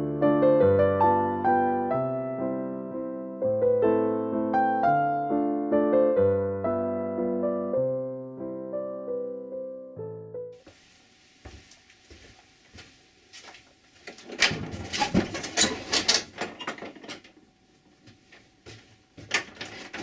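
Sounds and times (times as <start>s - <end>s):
wooden door unlatched and opened: 14.1s - 17.3s.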